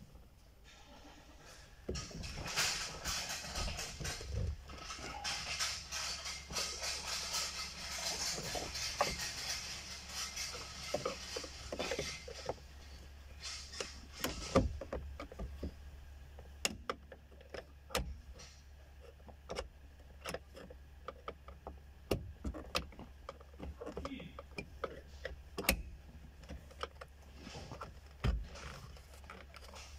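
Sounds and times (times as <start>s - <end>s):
steady low hum: 0.0s - 29.9s
tool clicks and rattles: 1.9s - 15.7s, 26.4s - 29.9s.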